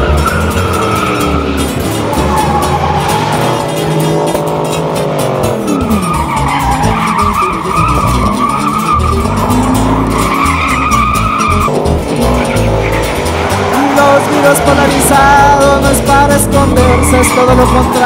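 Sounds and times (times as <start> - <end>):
band music: 0.0 - 18.0
engine revving: 0.0 - 18.0
truck tires squealing: 0.0 - 18.0.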